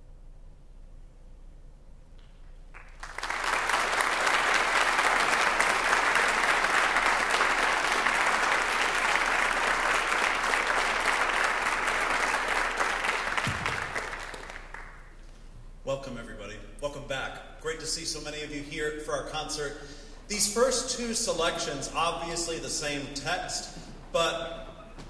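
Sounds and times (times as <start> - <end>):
audience applauding: 2.7 - 15.2.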